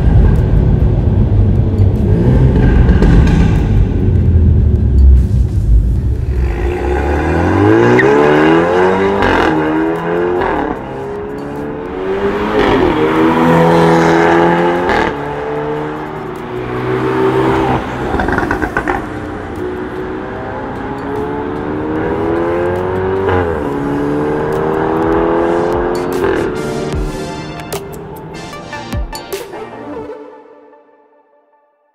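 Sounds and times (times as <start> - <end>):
car engine accelerating hard: 0.0 - 27.0
exhaust cracks on gear shifts: 17.9 - 19.6.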